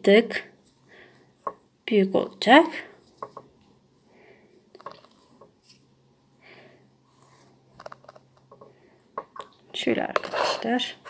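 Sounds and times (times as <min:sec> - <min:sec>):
thread rustling through fabric: 0:03.0 - 0:03.7.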